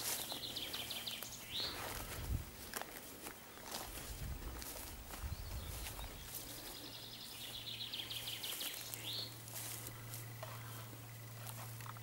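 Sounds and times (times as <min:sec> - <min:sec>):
faint low hum: 0:00.0 - 0:12.0
grass rustling: 0:00.0 - 0:12.0
songbird trilling: 0:05.3 - 0:09.4.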